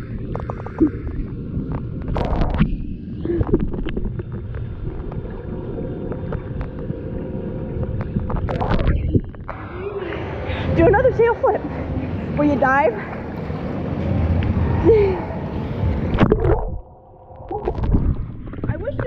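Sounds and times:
bubbly clicks and crackles: 0.0s - 9.6s, 15.9s - 19.0s
muffled underwater rumble: 0.0s - 19.0s.

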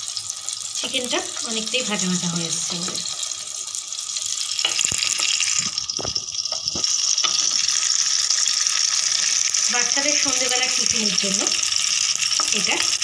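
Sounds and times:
patties sizzling in oil: 0.0s - 13.0s.

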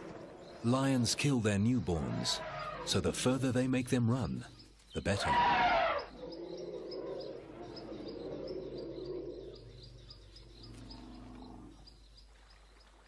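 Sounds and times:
low droning animal call: 5.2s - 11.8s.

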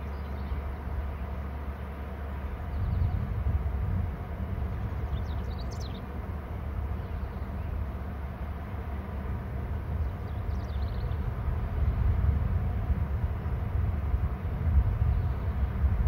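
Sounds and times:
wind rumbling on microphone: 2.5s - 16.0s.

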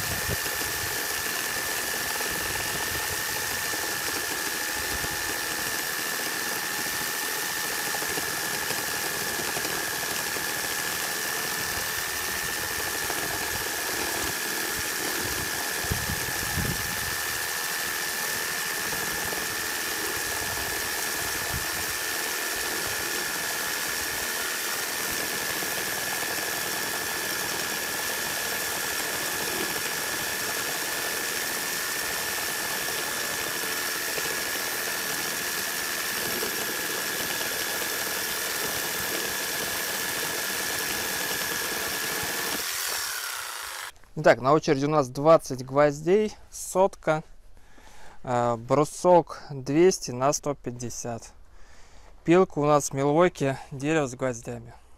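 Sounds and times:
reciprocating saw motor whine: 0.0s - 44.0s
saw blade rasping through wood: 0.0s - 44.0s.

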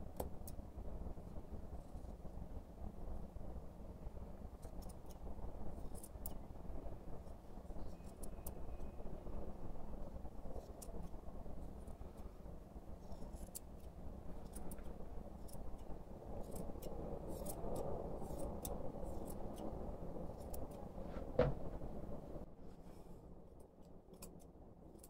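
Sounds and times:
steady low hum: 0.0s - 25.0s
scissors snipping fur: 4.6s - 6.4s, 10.5s - 11.2s, 13.0s - 20.9s, 23.8s - 25.0s
loud knock: 21.2s - 21.9s.

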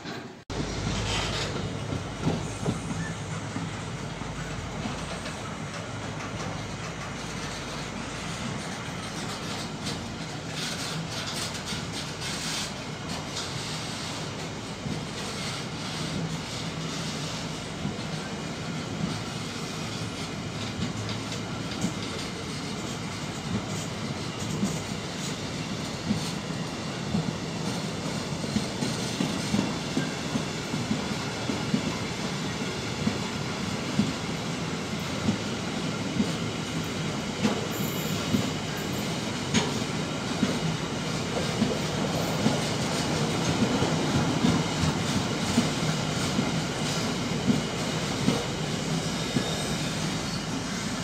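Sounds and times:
freight train rumbling past: 0.0s - 51.0s
brief high squeal: 2.4s - 3.4s, 49.2s - 50.5s.

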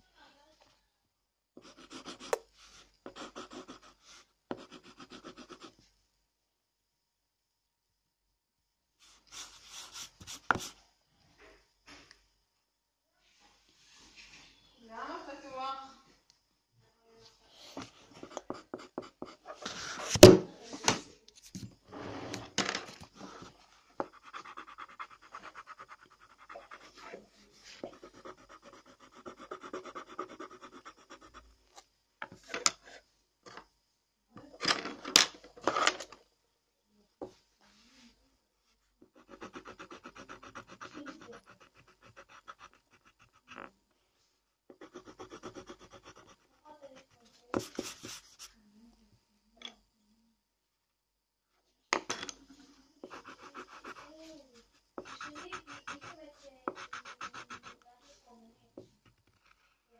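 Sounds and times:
pencil scratching on paper: 1.6s - 5.8s, 9.0s - 10.8s, 17.7s - 20.4s, 21.5s - 31.5s, 39.0s - 43.7s, 44.7s - 48.5s, 53.0s - 58.3s.

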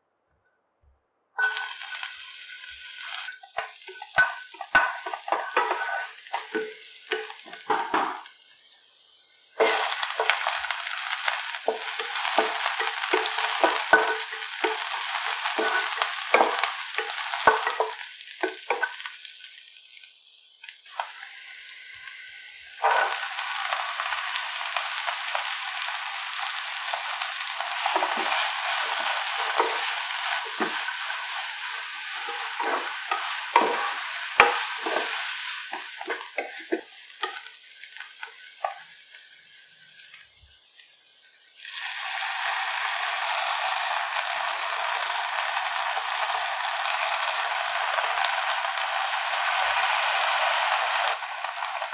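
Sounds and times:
spatula scraping pan: 1.4s - 8.2s, 9.6s - 19.1s, 22.8s - 24.2s, 26.5s - 37.5s
onion sizzling in hot oil: 1.4s - 51.9s
vegetables sizzling in pan: 1.4s - 51.9s.

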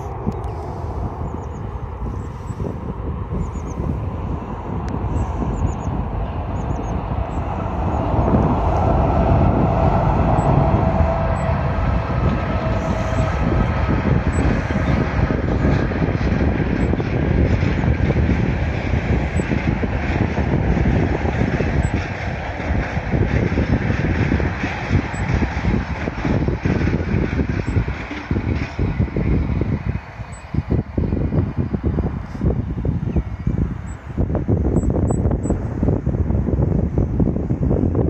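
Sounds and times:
steady whine: 0.0s - 35.8s
distant freight train rumble: 0.0s - 38.0s.

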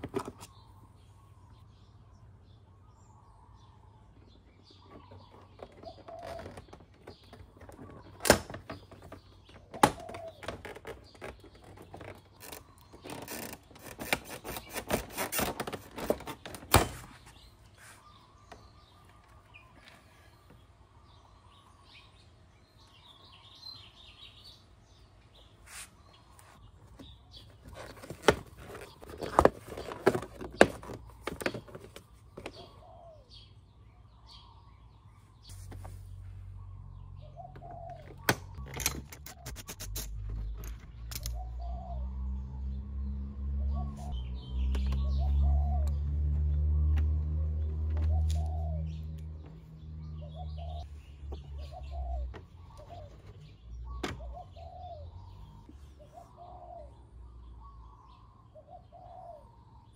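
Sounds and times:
plastic panels snapping and clicking: 5.4s - 17.2s
plastic clattering: 27.0s - 32.6s.

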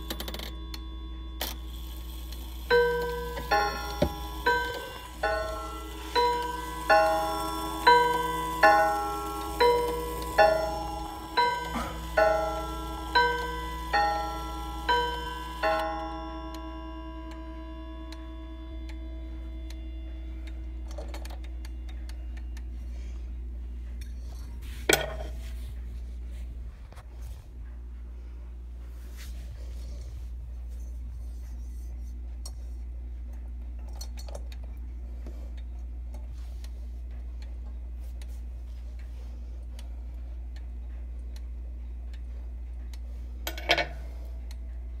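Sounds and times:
chime rods ringing: 0.0s - 20.1s
clock ticking: 2.6s - 17.5s.

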